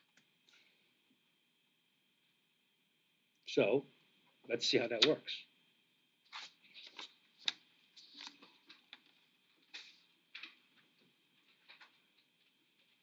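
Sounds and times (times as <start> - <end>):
paper sheets rustling: 6.3 - 10.6.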